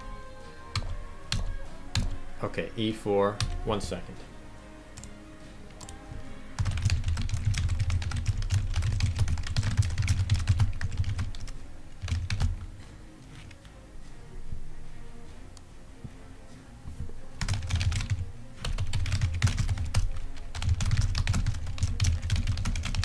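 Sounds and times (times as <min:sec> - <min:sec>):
typing on computer keyboard: 0:00.7 - 0:02.2, 0:06.6 - 0:12.6, 0:17.4 - 0:23.0.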